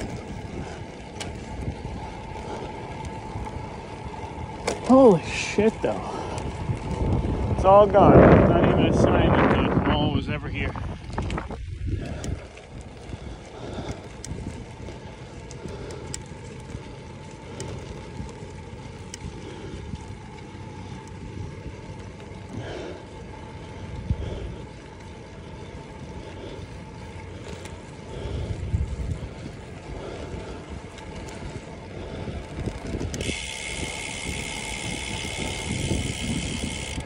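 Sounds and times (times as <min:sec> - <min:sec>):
bicycle tyres on rough concrete: 0:00.0 - 0:37.0
wind rushing past microphone: 0:04.9 - 0:15.0, 0:28.2 - 0:37.0.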